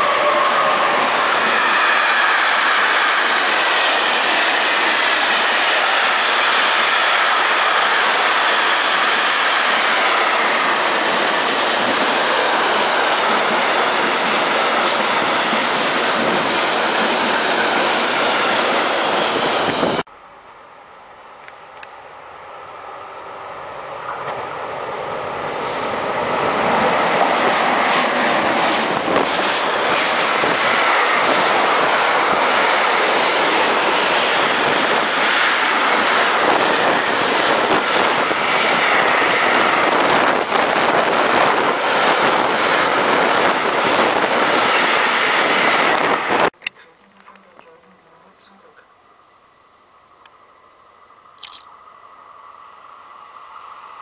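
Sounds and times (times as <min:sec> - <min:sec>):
freight train passing: 0:00.0 - 0:46.6, 0:47.6 - 0:54.0
train wheels clacking: 0:26.7 - 0:40.7.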